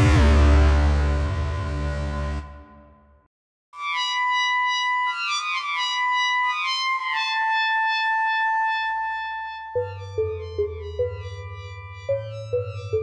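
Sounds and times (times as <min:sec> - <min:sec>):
synthesizer trumpet notes: 0:03.8 - 0:13.0.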